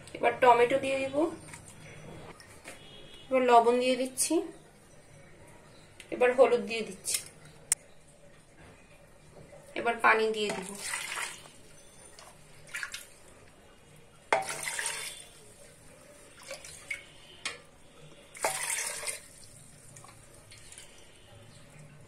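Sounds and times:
water splashing into pot: 10.3 - 13.3, 14.3 - 17.7, 18.3 - 21.0.

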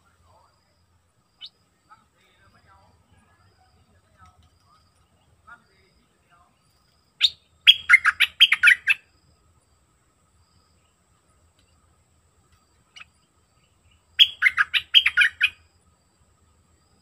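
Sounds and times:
bird chirping: 1.2 - 15.8.

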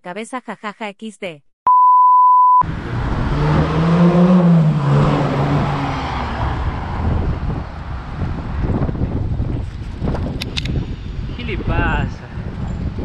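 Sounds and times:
test-card beep: 1.7 - 2.6
wind on microphone: 5.4 - 13.0.

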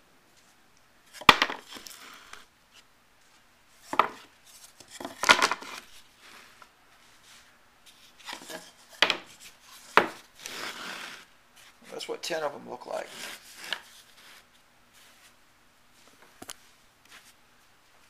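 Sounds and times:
cards rubbing and scraping: 1.5 - 2.8, 3.9 - 11.9, 12.9 - 15.3.

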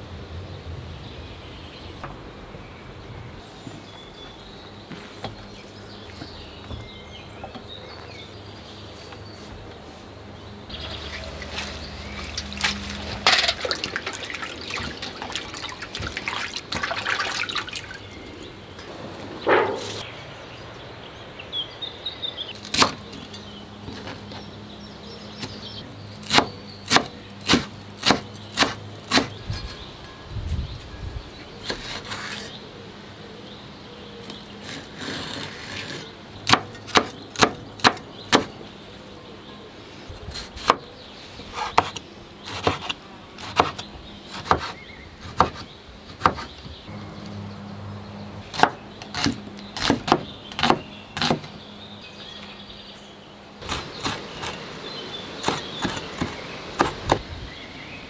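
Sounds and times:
knife chopping on wooden board: 44.4 - 46.5.

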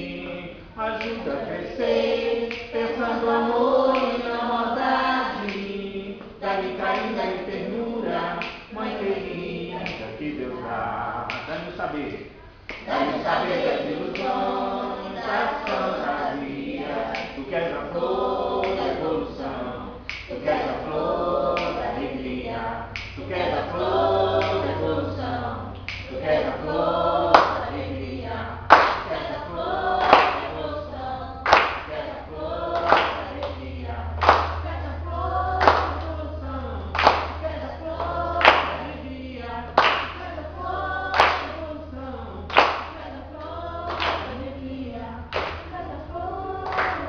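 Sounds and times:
youth choir singing: 0.0 - 47.0
hand claps keeping time: 1.0 - 1.3, 2.0 - 3.0, 3.8 - 7.7, 8.4 - 8.7, 9.8 - 10.1, 11.3 - 11.7, 12.7 - 17.4, 18.6 - 19.4, 20.1 - 20.8, 21.6 - 22.3, 22.9 - 24.8, 25.8 - 36.2, 36.9 - 40.3, 41.1 - 41.7, 42.5 - 43.0, 43.9 - 45.8, 46.6 - 47.0.

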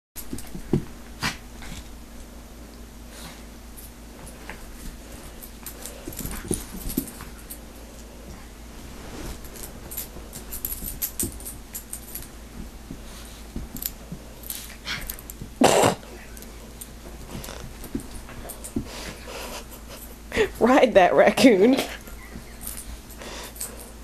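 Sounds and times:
dog scuffling on carpet: 0.3 - 2.0, 4.1 - 15.6, 16.3 - 19.9.

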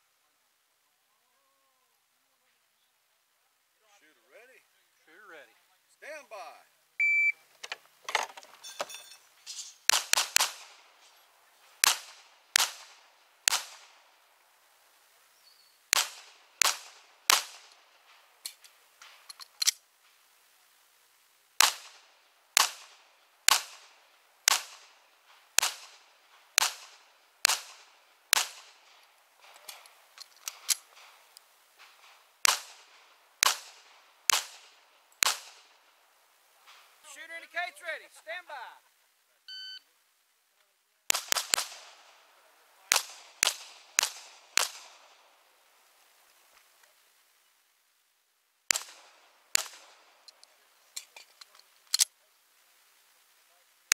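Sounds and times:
pistol shots: 9.8 - 14.1, 15.9 - 18.2, 21.6 - 31.2, 31.8 - 35.9, 41.1 - 45.3, 48.7 - 50.3.

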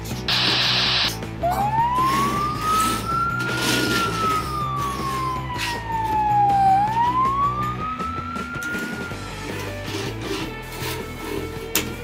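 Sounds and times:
background music: 0.0 - 12.0
siren wailing: 0.3 - 9.5.

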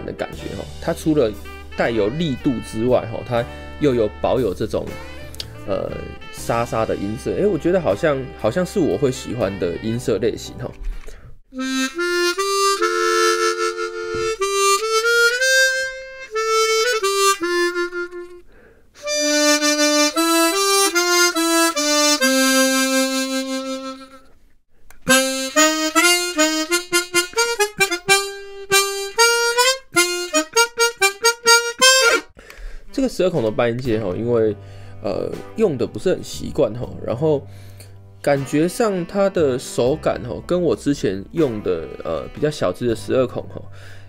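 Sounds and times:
harmonica melody: 0.0 - 10.2, 11.0 - 24.3, 25.0 - 33.0, 41.5 - 42.8.

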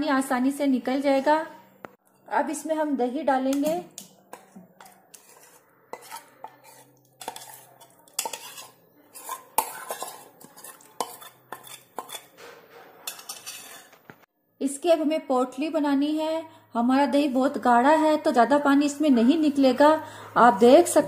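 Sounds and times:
metal spoon scraping steel bowl: 3.5 - 14.0.

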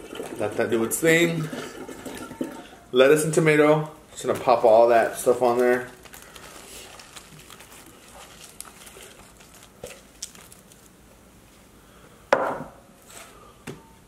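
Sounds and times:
knock on tray: 12.4 - 12.7.

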